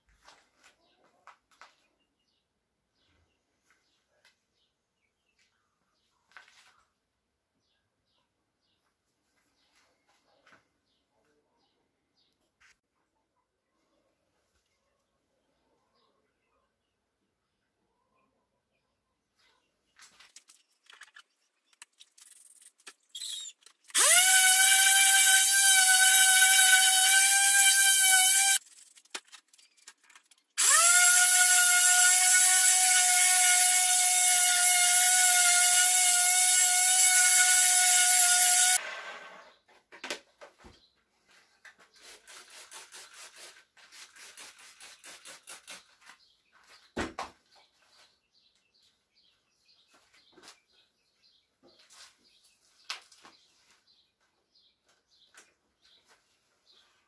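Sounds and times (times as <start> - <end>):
power drill motor whine: 23.2 - 28.6, 30.6 - 39.5.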